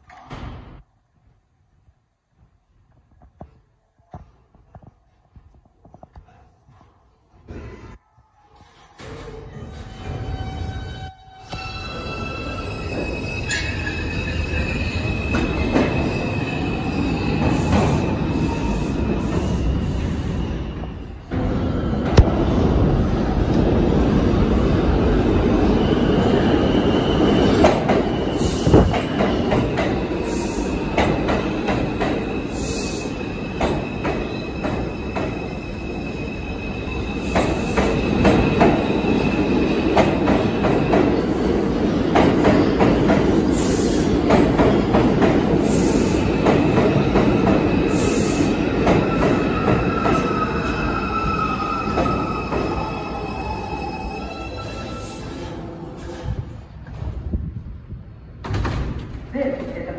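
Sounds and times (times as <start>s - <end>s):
subway train rumble: 0.0s - 59.9s
high-pitched wheel squeals: 8.7s - 19.1s.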